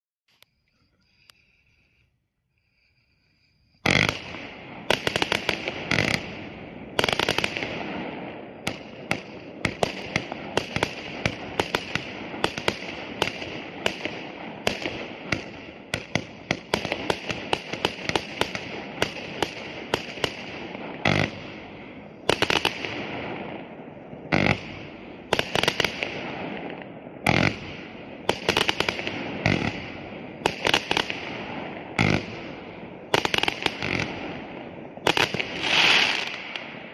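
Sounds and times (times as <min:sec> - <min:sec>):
fireworks bursting with crackle: 0:03.7 - 0:36.9.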